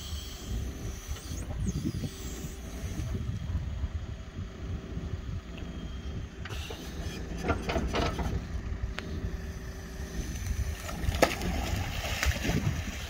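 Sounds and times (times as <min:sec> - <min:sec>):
diesel engine running: 0:00.0 - 0:13.0
metal clanks from digger arm: 0:06.5 - 0:08.4.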